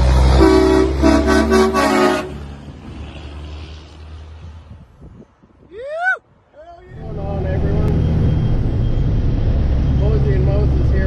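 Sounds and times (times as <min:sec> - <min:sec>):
diesel engine rumble: 0:00.0 - 0:05.6, 0:06.5 - 0:11.0
truck air horn blasts: 0:00.2 - 0:02.5.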